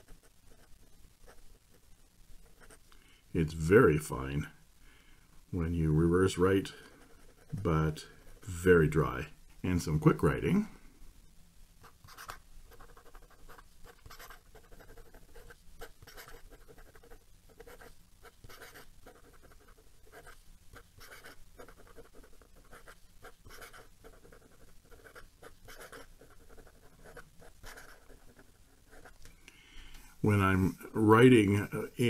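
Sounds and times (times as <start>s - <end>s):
fountain pen scratching on paper: 2.4s - 2.8s, 6.9s - 7.6s, 11.8s - 29.2s.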